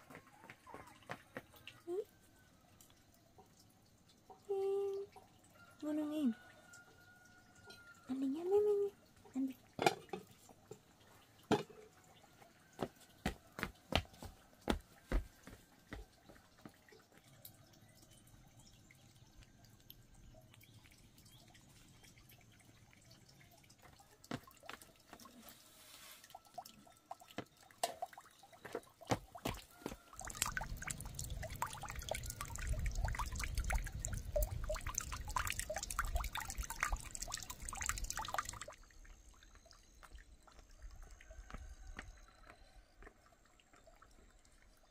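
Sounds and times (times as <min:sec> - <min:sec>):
water dripping: 0:00.0 - 0:44.9
water splashing and pouring: 0:09.1 - 0:44.9.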